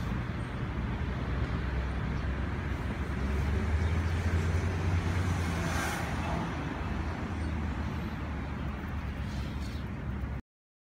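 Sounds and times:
low traffic engine rumble: 0.0s - 10.4s.

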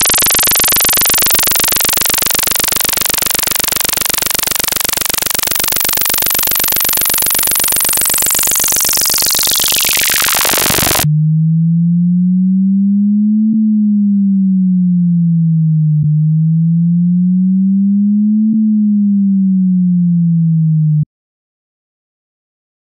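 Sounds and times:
harsh buzz of rapid pulses: 0.0s - 11.1s.

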